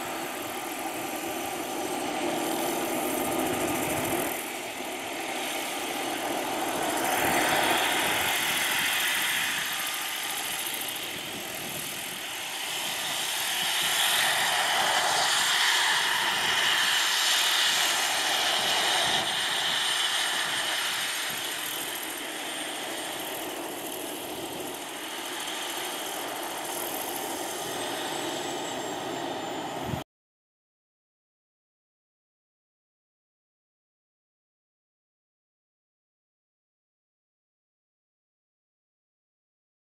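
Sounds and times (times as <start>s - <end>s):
model helicopter rotor and motor: 0.0s - 30.0s.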